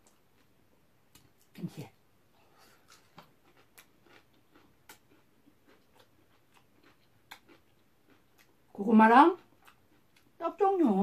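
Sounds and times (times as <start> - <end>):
chewing mouth sounds: 2.6 - 8.6, 9.4 - 10.4.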